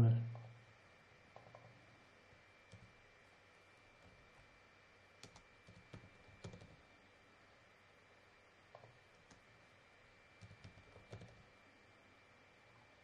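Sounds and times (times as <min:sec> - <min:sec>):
faint computer keyboard typing: 0:01.3 - 0:01.8, 0:02.7 - 0:03.0, 0:04.0 - 0:04.5, 0:05.2 - 0:06.9, 0:08.7 - 0:09.6, 0:10.4 - 0:11.5.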